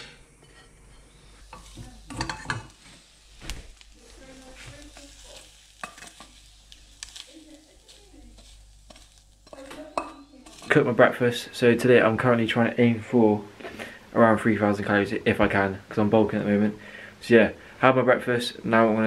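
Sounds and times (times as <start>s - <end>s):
spatula scraping pan: 0.0s - 11.4s
eggs sizzling in frying pan: 0.0s - 19.0s
utensil knocking on pan: 8.4s - 10.7s.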